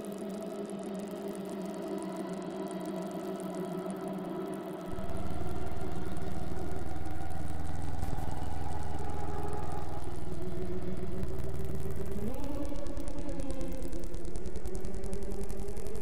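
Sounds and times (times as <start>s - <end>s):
low engine-like drone: 4.9s - 16.0s.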